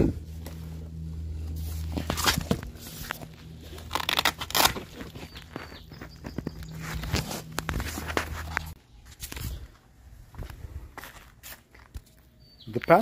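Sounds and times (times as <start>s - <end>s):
steady low hum: 0.0s - 12.2s
fabric panel rustling and scraping: 1.4s - 8.8s.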